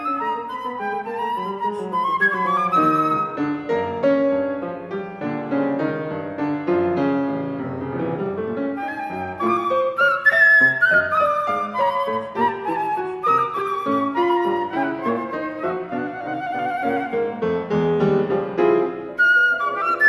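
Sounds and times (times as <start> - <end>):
flute melody: 0.0 - 5.5, 7.6 - 20.0
piano accompaniment: 0.0 - 20.0.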